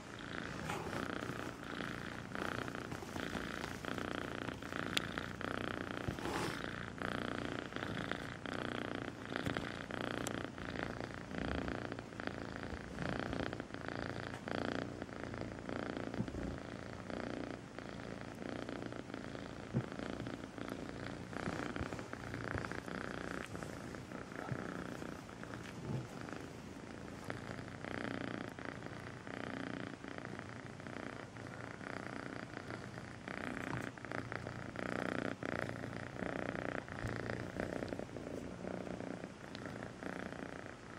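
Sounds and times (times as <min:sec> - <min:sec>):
kitten purring: 0:00.0 - 0:40.9.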